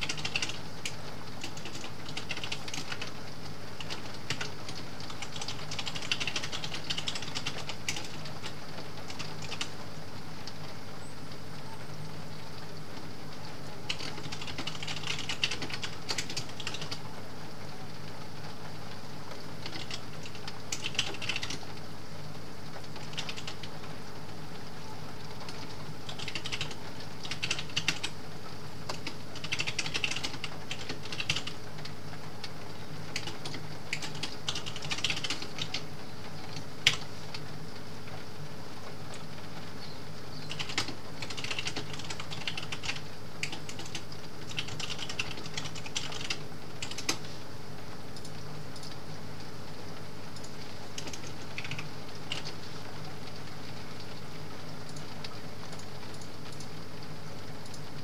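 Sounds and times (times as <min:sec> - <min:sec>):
typing on computer keyboard: 0:00.0 - 0:03.2, 0:03.8 - 0:09.8, 0:13.9 - 0:17.0, 0:19.6 - 0:21.7, 0:22.8 - 0:23.8, 0:25.4 - 0:28.2, 0:28.9 - 0:31.6, 0:32.4 - 0:35.9, 0:36.5 - 0:37.1, 0:40.5 - 0:47.2, 0:50.4 - 0:52.6
rain on a skylight: 0:00.0 - 0:58.0.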